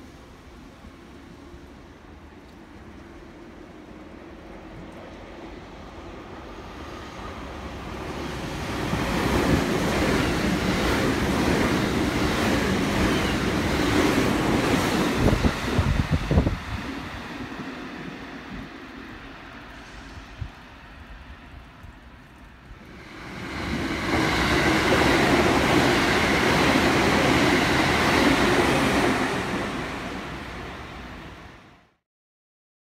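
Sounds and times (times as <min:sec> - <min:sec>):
electric train passing: 0:00.0 - 0:31.8
wind buffeting microphone: 0:08.4 - 0:18.8, 0:19.9 - 0:29.7.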